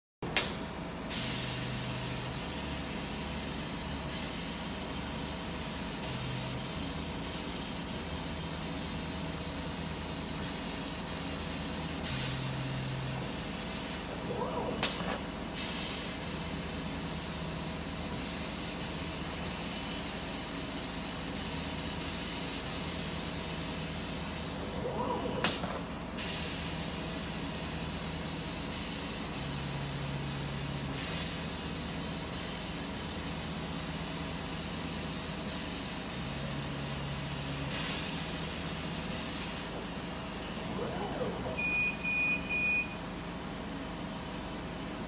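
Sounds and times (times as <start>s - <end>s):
machine running noise: 0.2s - 45.0s
hiss of assist air: 0.5s - 1.8s, 14.8s - 17.4s, 25.4s - 40.8s.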